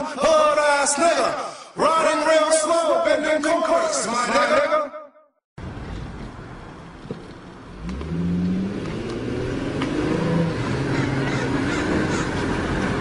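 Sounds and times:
vehicle engine revving: 7.6 - 13.0.

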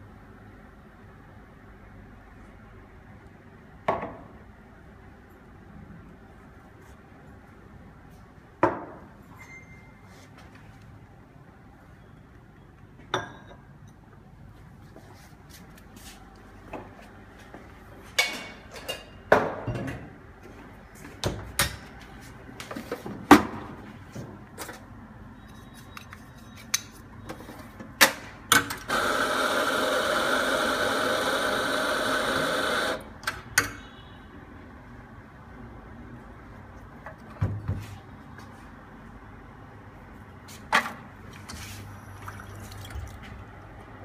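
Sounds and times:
espresso grinder running: 28.9 - 33.0.

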